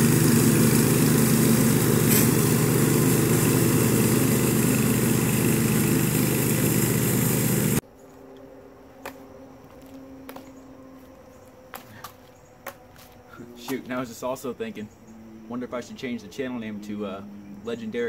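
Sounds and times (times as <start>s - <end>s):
lawn mower engine running: 0.0s - 7.8s.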